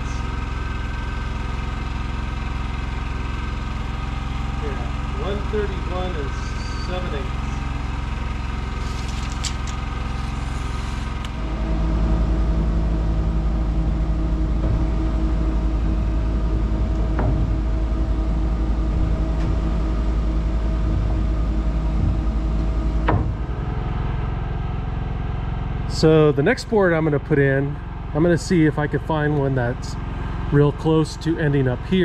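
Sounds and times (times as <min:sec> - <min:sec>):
work lift engine running: 0:00.0 - 0:32.0
sharp knock: 0:23.0 - 0:23.6.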